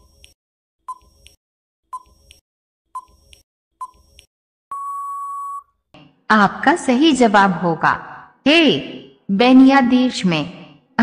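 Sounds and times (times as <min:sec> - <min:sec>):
long steady beep: 0:04.7 - 0:05.7.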